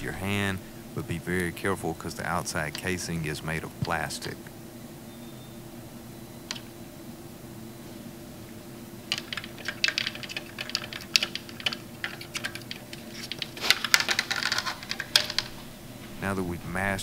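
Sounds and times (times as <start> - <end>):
steady low hum: 0.0 - 17.0
small clicks and taps on circuit board: 6.4 - 6.7, 9.1 - 14.5.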